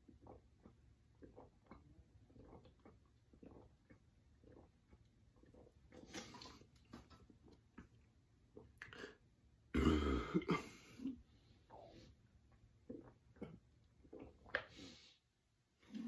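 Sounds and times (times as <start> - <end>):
loud deep burp: 9.7 - 10.8.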